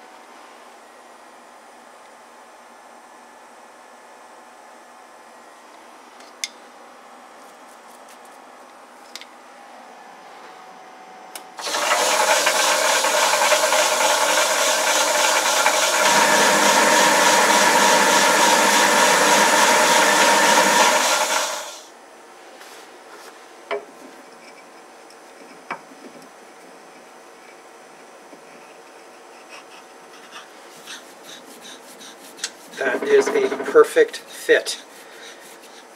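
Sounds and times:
metal lathe whining: 0:11.6 - 0:21.9, 0:32.8 - 0:33.8.

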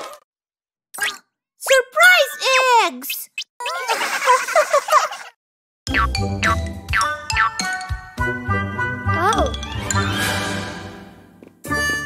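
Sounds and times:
cartoon background music: 0:05.9 - 0:12.0.

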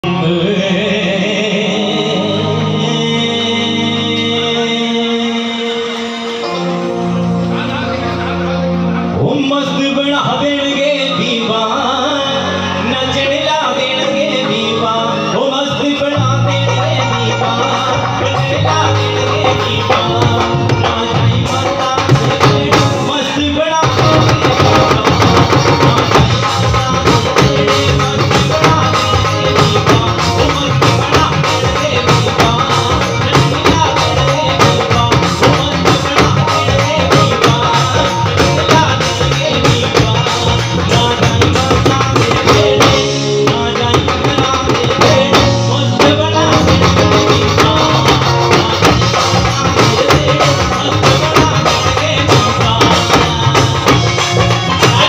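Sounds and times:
electric guitar: 0:00.0 - 0:55.0
man singing into a microphone: 0:00.0 - 0:55.0
drums with a steady beat: 0:09.3 - 0:55.0.

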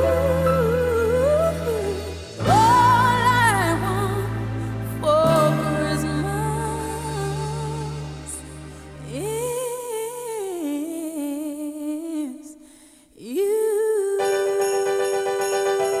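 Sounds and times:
band playing pop music: 0:00.0 - 0:09.5
person singing: 0:00.0 - 0:12.6, 0:13.2 - 0:16.0.

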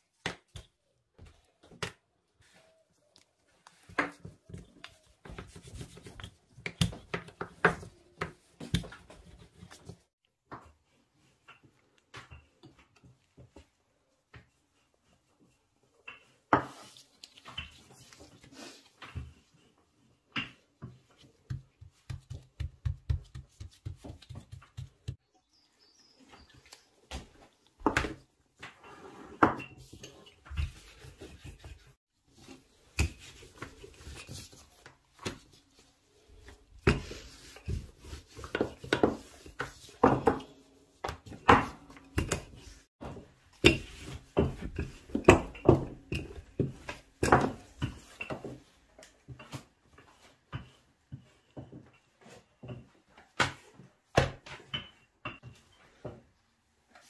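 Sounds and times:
rolling pin on dough: 0:20.4 - 0:25.2, 0:29.8 - 0:53.0.

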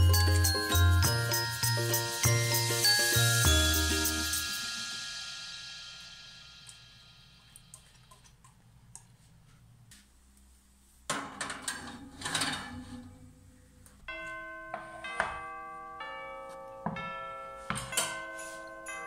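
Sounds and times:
bell-like chimes: 0:00.0 - 0:07.6, 0:14.1 - 0:19.0.

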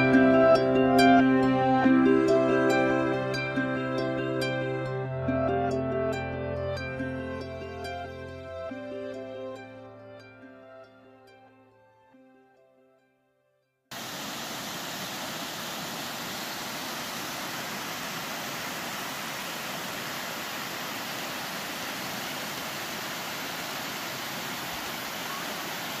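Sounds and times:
creek water rushing over rocks: 0:13.9 - 0:26.0.

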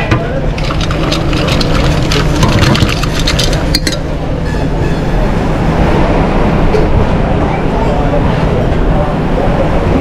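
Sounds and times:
kitchen low roar: 0:00.0 - 0:10.0
utensils clattering on steel pans: 0:00.6 - 0:04.1.

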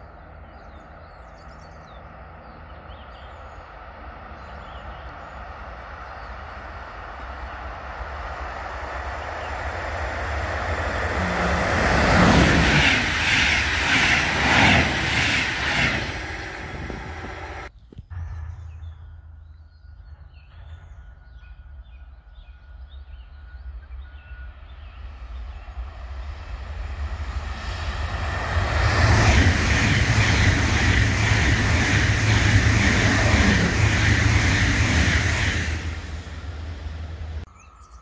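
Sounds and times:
train wheels rushing on rails: 0:03.2 - 0:17.7, 0:24.5 - 0:37.5.

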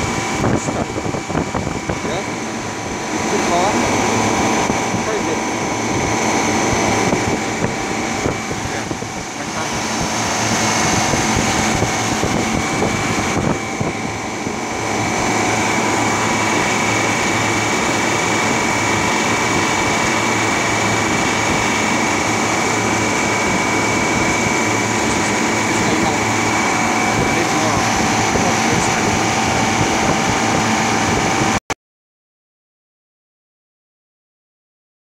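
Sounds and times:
compressor humming with high whine: 0:00.0 - 0:31.6.

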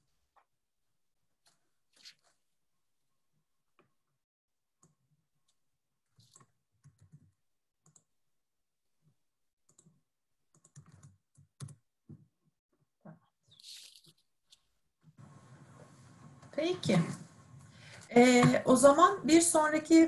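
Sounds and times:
computer keyboard and mouse clicks: 0:09.7 - 0:11.8.

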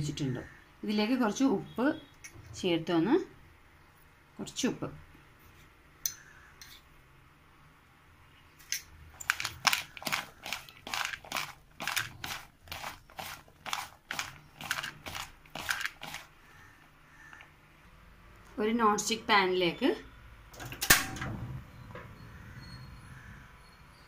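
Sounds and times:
potato slices rustling by hand: 0:09.2 - 0:16.4.

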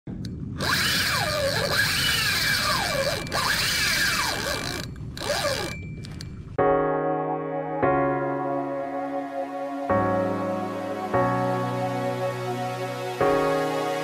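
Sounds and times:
fishing reel drag buzzing: 0:00.6 - 0:05.8.

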